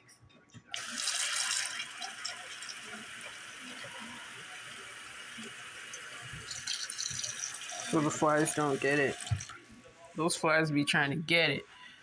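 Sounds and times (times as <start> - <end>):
tap water running into pot: 0.8 - 9.6.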